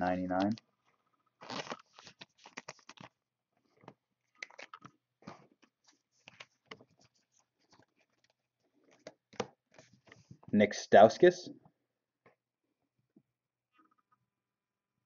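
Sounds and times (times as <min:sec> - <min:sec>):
cards clicking and rustling: 0:01.4 - 0:03.1, 0:03.8 - 0:10.3.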